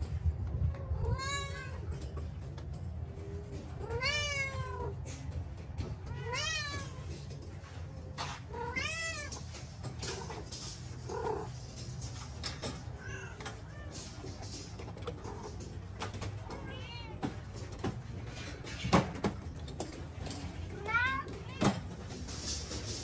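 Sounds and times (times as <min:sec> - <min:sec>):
cats meowing: 0:00.6 - 0:02.1, 0:03.2 - 0:11.8, 0:12.5 - 0:17.9, 0:20.4 - 0:22.2.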